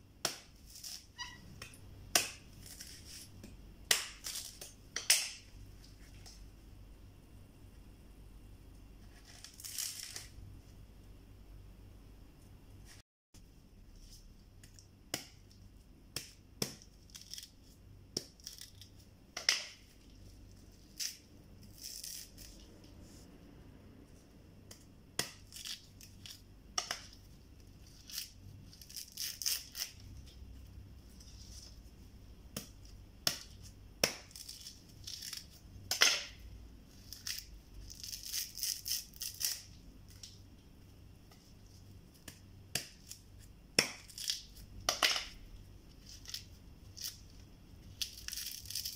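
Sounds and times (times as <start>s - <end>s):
knife chopping coconut husk: 0.2s - 5.5s, 16.1s - 17.5s, 32.5s - 34.6s, 42.2s - 43.2s, 43.8s - 45.4s
husk fibres ripping: 27.8s - 30.2s, 36.9s - 40.4s, 48.0s - 48.9s.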